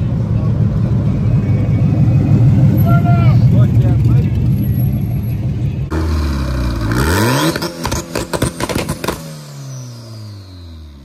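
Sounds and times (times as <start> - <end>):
car engine revving: 0.3 - 11.0
sharp exhaust cracks: 5.9 - 9.5.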